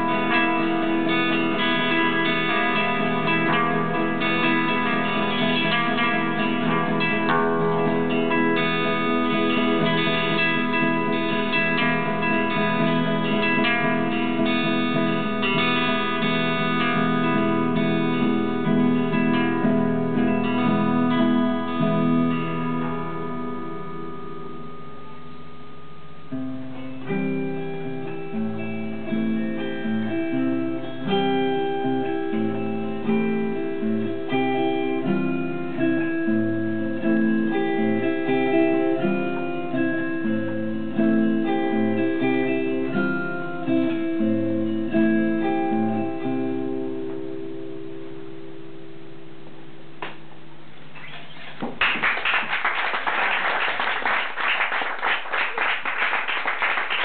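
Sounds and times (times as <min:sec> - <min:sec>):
acoustic guitar: 0:00.0 - 0:52.7
electric guitar: 0:00.0 - 0:57.0
audience clapping: 0:51.5 - 0:57.0.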